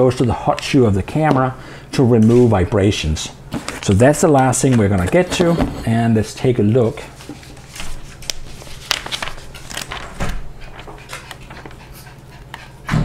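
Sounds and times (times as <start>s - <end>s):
paper rustling: 3.5s - 5.5s, 7.0s - 11.7s.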